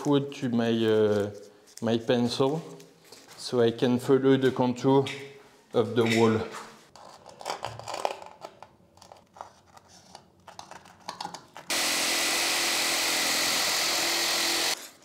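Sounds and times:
jigsaw cutting wood: 11.7s - 15.0s.

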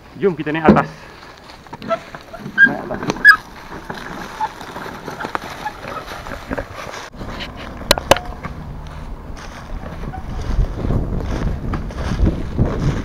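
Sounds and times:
wheelbarrow knocking: 0.6s - 1.0s, 1.7s - 7.1s
footsteps crunching on dry leaves: 1.0s - 13.0s.

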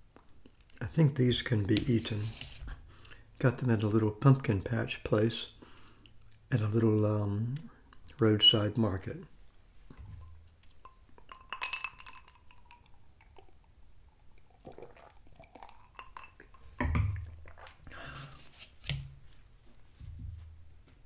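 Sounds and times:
drinking glass clinking: 10.8s - 12.8s
swallowing: 12.8s - 18.0s
glass set down with thump: 16.8s - 17.2s.

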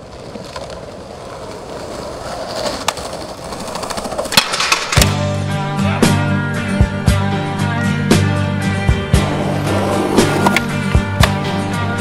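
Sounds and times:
skateboard clacks: 0.0s - 5.2s, 9.2s - 11.6s
skateboard wheels rolling on paving: 0.0s - 5.4s, 9.0s - 12.0s
guitar music: 5.1s - 12.0s.

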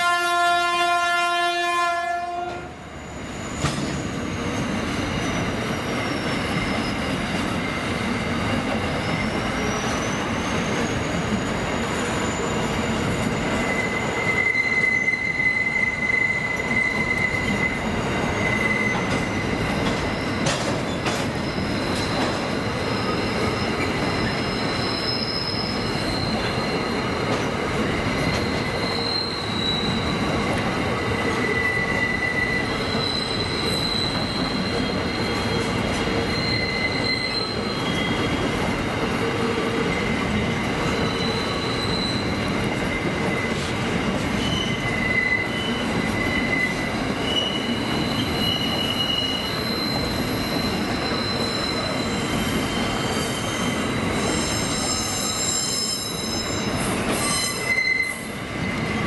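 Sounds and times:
train wheels rumbling on rails: 0.0s - 59.0s
high-pitched flange squeals: 9.7s - 20.5s, 21.4s - 27.0s, 28.2s - 38.5s, 40.8s - 43.7s, 44.4s - 58.9s.

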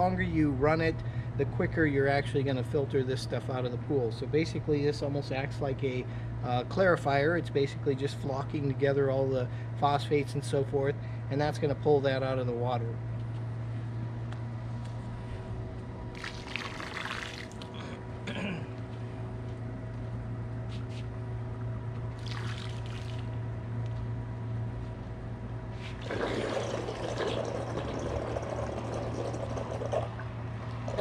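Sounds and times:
low hum: 0.0s - 31.0s
liquid splashing into water: 16.1s - 17.7s, 22.2s - 23.3s, 26.0s - 30.2s.

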